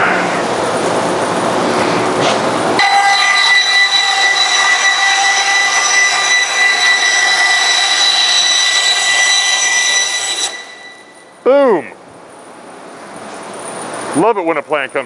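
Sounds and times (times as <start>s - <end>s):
bandsaw whining: 2.8s - 11.4s.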